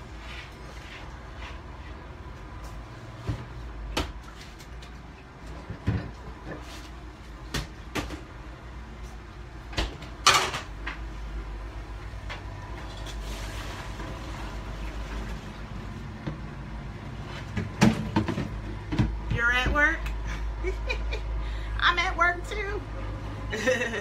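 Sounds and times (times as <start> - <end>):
refrigerator rummaging knocks: 17.5 - 19.8.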